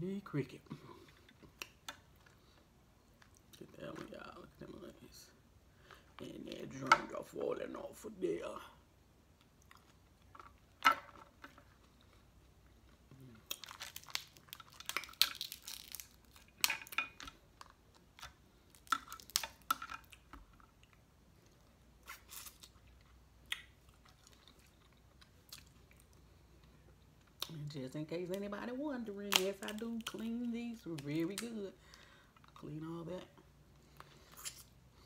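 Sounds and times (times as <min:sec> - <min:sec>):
close-up chewing: 0:09.4 - 0:10.7, 0:17.3 - 0:27.6
crab shell cracking: 0:13.4 - 0:20.7.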